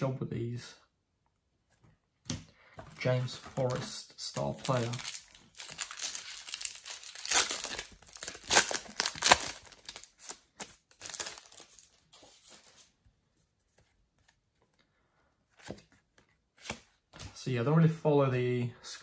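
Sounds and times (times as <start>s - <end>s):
wrapper tearing and crinkling: 3.5s - 12.7s.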